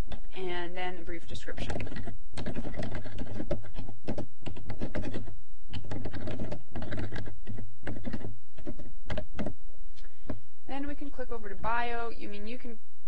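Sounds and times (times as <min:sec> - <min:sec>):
steady low hum: 0:00.0 - 0:13.0
typing on computer keyboard: 0:01.6 - 0:09.5.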